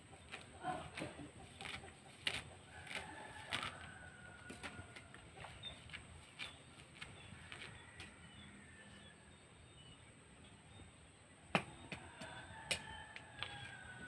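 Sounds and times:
knocks and rustles of weeding: 0.2s - 8.2s.

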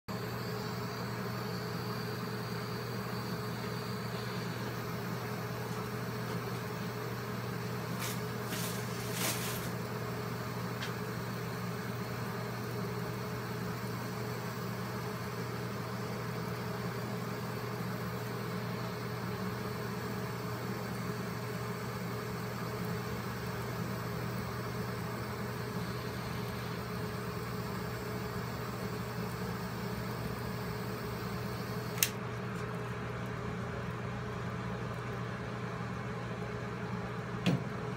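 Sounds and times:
torch flame hissing: 0.2s - 32.2s
sharp clicks: 31.9s - 32.2s.

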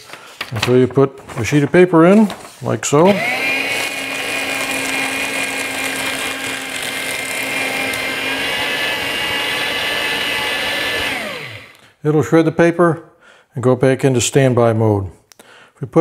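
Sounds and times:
paper shredder whining: 3.0s - 11.9s.

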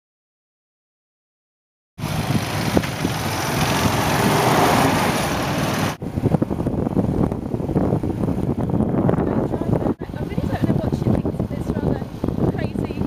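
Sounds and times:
small motorbike running: 2.0s - 6.0s
wind buffeting microphone: 2.0s - 13.0s.

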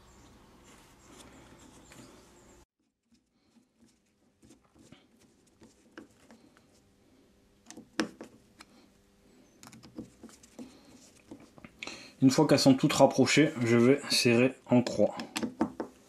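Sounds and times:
screwdriver clicking and tapping: 7.6s - 8.3s, 15.2s - 15.9s.

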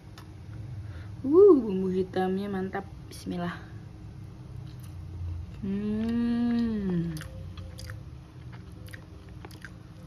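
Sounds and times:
woman chewing: 4.6s - 10.0s
closed-mouth hum of enjoyment: 4.7s - 10.0s.

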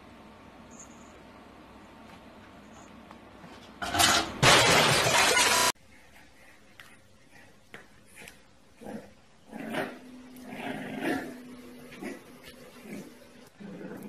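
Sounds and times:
puppy growling: 8.8s - 14.0s.

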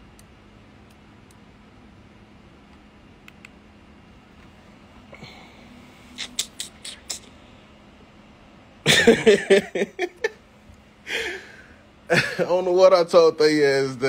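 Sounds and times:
high hissing clicks: 6.1s - 7.4s
man making wordless vocal sounds: 6.2s - 7.3s.

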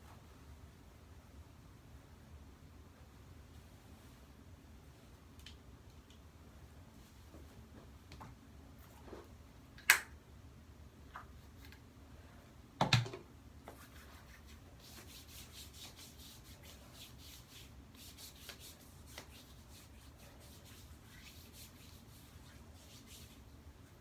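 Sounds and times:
soft rapid rubbing strokes: 13.6s - 24.0s.

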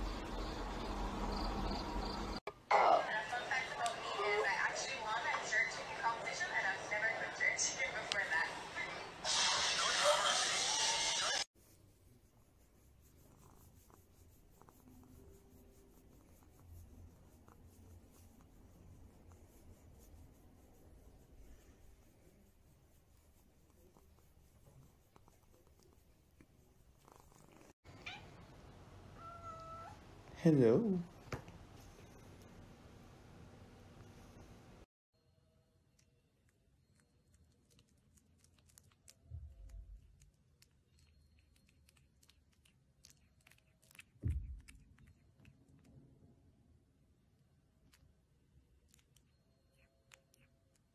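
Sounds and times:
fingers scratching cat fur: 11.6s - 27.8s.

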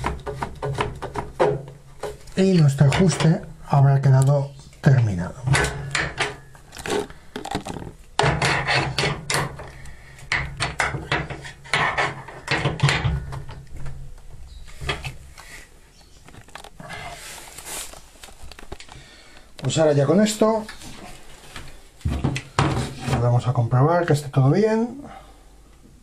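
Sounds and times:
wrench scraping and clicking on nut: 6.8s - 9.7s.

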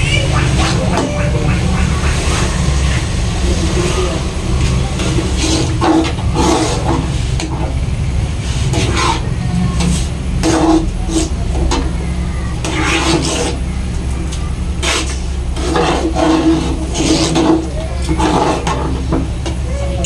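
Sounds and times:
metal ladle scraping pot: 5.0s - 7.6s, 14.8s - 19.2s.

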